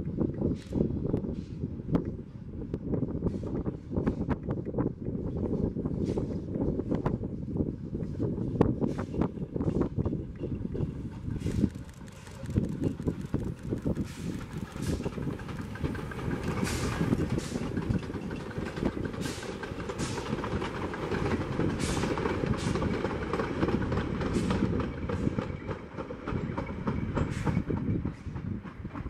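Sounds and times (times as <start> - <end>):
train wheels rumbling on rails: 0.0 - 29.0
clacks over rail joints: 8.6 - 29.0.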